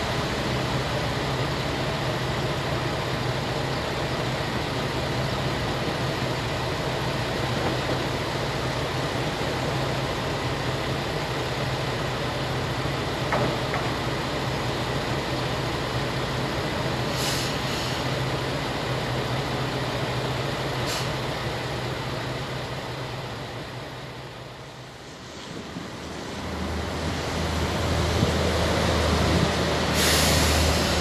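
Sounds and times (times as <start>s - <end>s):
diesel railcar creeping in: 0.0s - 31.0s
diesel railcar engines idling: 0.0s - 31.0s
short hisses of air: 17.1s - 18.1s, 20.8s - 21.2s, 29.9s - 31.0s.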